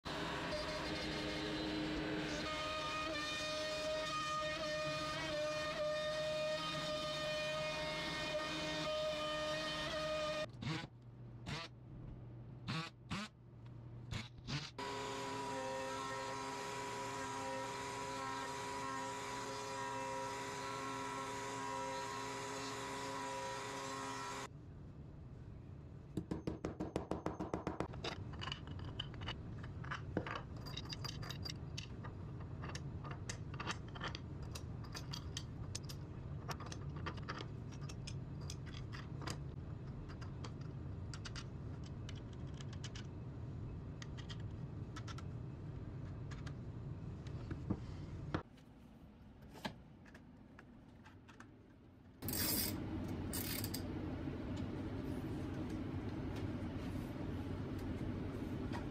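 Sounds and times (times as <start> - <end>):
metal hardware clicking and jangling: 28.0 - 39.4, 52.2 - 53.9
sharp metallic tool noises: 52.2 - 53.8.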